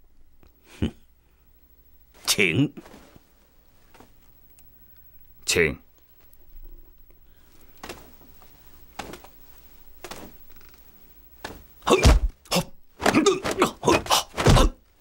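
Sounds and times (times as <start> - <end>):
fight thuds whacks and swishes: 11.4 - 12.4, 13.0 - 14.8.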